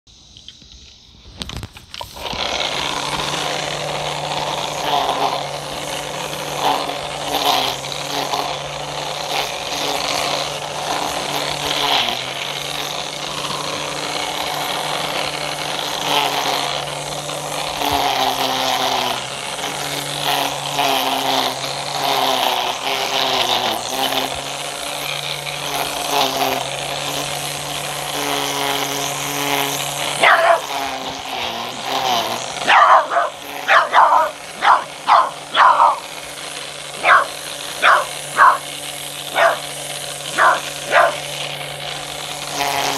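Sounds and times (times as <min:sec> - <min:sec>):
string trimmer motor hum: 0:00.1 - 0:42.9
small dog barking: 0:30.2 - 0:30.7, 0:32.6 - 0:36.0, 0:37.0 - 0:38.7, 0:39.3 - 0:39.7, 0:40.3 - 0:41.3.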